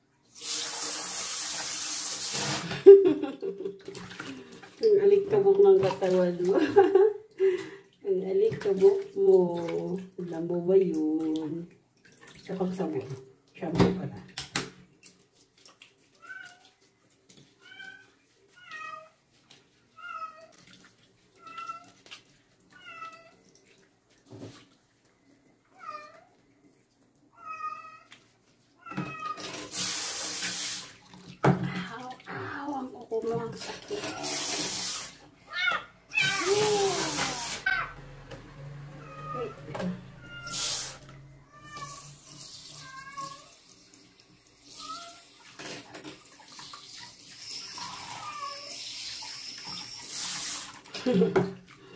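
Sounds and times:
sink sprayer water spray: 0:00.3 - 0:03.1, 0:29.3 - 0:31.0, 0:33.6 - 0:35.3, 0:36.2 - 0:41.1, 0:46.7 - 0:51.3
kitten meowing: 0:35.6 - 0:37.9, 0:40.2 - 0:42.0.

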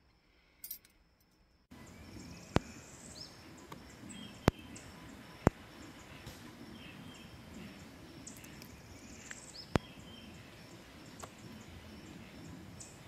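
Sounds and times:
birds chirping: 0:01.7 - 0:13.0.

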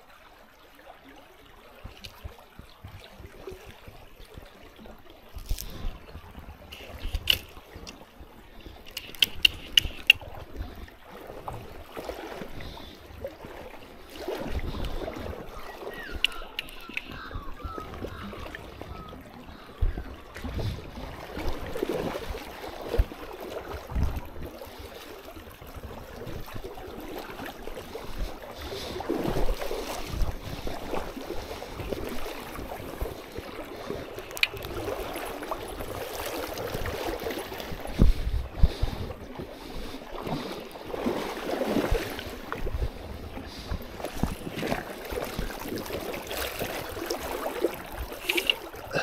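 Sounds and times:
river water sloshing and splashing: 0:00.0 - 0:49.0
wind buffeting microphone: 0:14.3 - 0:24.9, 0:25.5 - 0:49.0.

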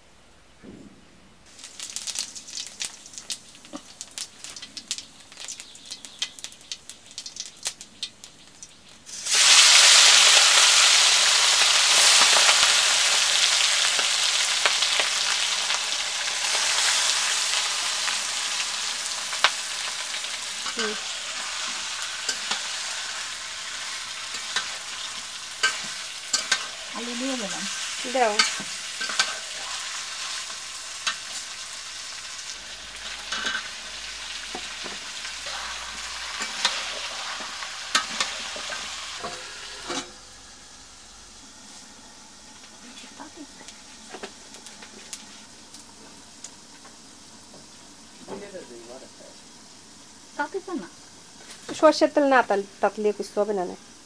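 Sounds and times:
chicken sizzling in hot oil: 0:01.5 - 0:54.0
metal spatula scraping pan: 0:28.1 - 0:30.0, 0:33.1 - 0:33.8, 0:34.5 - 0:40.2.

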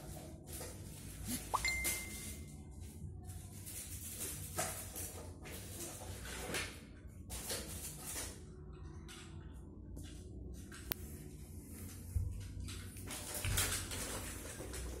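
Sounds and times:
plastic toys rustling and clicking: 0:12.4 - 0:15.0.

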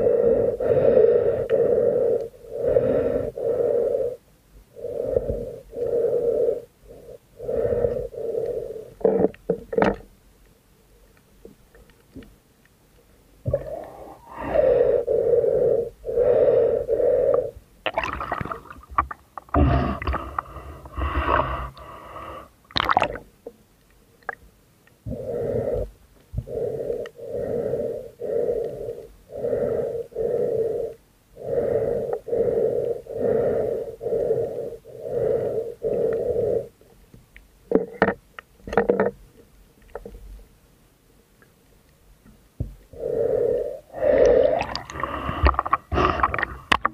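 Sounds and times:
breathing through a snorkel: 0:00.0 - 0:04.2, 0:04.8 - 0:09.2, 0:13.5 - 0:17.6, 0:18.3 - 0:22.6, 0:25.1 - 0:36.8, 0:42.9 - 0:46.8.

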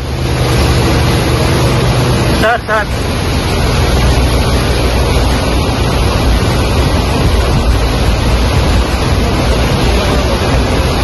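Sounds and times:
tractor diesel engine running: 0:00.0 - 0:11.0
water rushing: 0:00.0 - 0:11.0
wind noise: 0:00.0 - 0:11.0.

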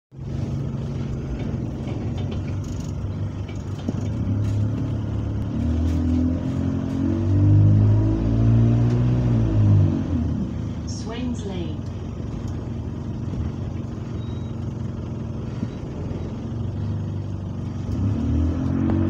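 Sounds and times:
bus diesel engine accelerating: 0:00.1 - 0:19.0.

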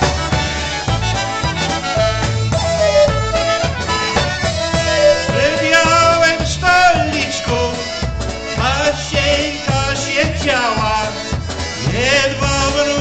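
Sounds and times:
clarinet: 0:00.0 - 0:08.7
trumpet: 0:00.0 - 0:10.2
drums: 0:00.0 - 0:13.0
polka band playing: 0:00.0 - 0:13.0.

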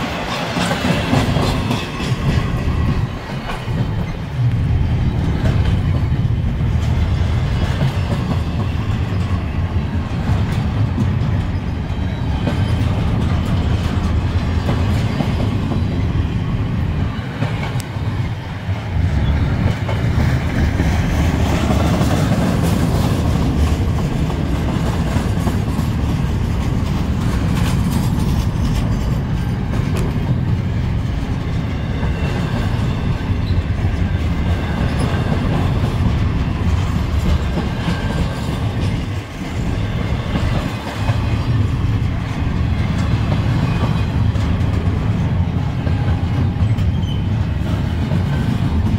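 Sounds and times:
freight train wheels rumbling: 0:00.0 - 0:48.9.

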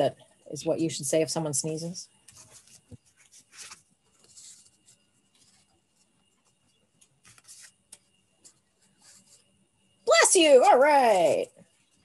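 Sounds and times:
paper cards rustling: 0:02.2 - 0:09.4.

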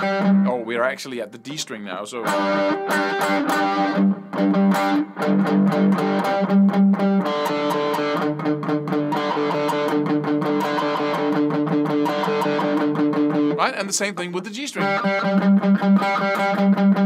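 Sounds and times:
distorted electric guitar picking: 0:00.0 - 0:00.7, 0:02.2 - 0:17.0.

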